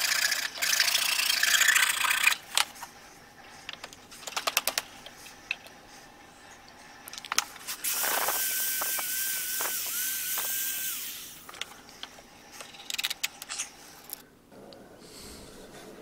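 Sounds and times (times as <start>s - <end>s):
belt sander whining: 7.9s - 11.4s.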